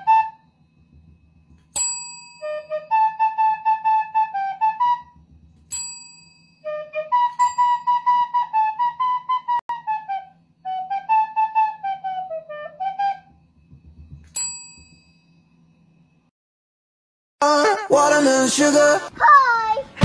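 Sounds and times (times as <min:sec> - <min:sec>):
small flute tune: 0:00.0 - 0:00.6, 0:02.4 - 0:05.3, 0:06.6 - 0:13.5, 0:17.4 - 0:18.4
desk bell dinging: 0:01.7 - 0:02.5, 0:13.7 - 0:15.4.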